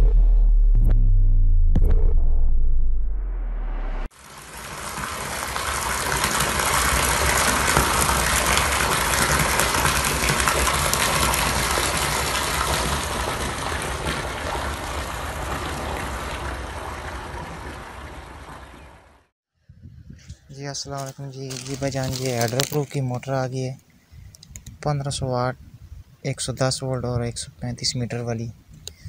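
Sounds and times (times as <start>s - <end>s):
water gushing into a tank: 4.1s - 19.2s.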